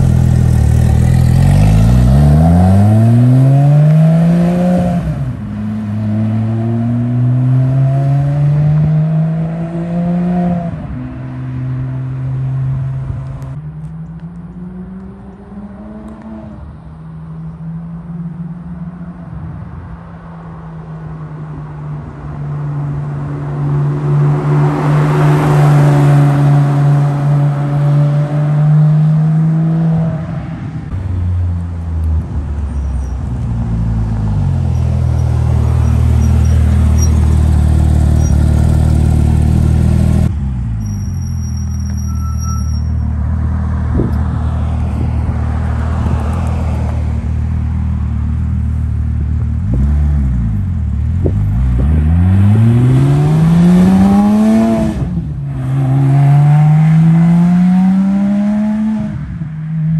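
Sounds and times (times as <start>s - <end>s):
sports car engine driving by: 0.0s - 19.3s, 21.0s - 41.7s.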